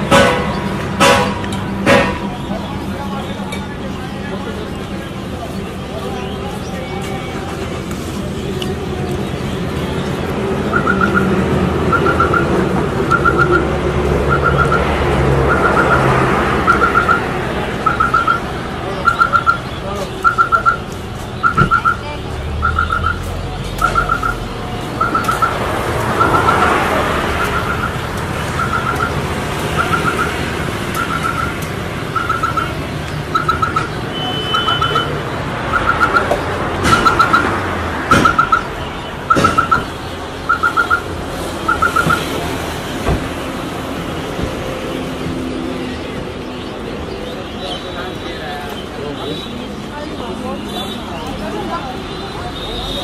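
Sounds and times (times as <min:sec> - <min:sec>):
street traffic rumble: 0:00.0 - 0:53.0
electronic chirp of quick notes: 0:25.0 - 0:25.6.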